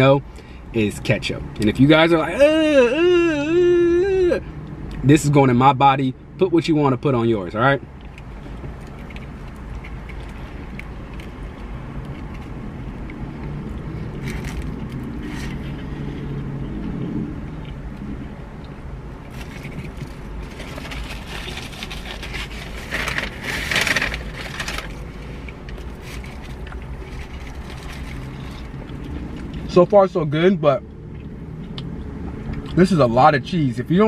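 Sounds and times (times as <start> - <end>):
low hum in car cabin: 0.0 - 34.0
person chewing: 8.0 - 29.7, 31.1 - 32.8
foil wrapper crinkling: 19.3 - 28.7.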